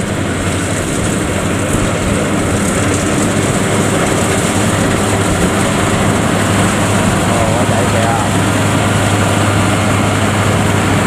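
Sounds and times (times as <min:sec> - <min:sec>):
combine harvester running: 0:00.0 - 0:11.0.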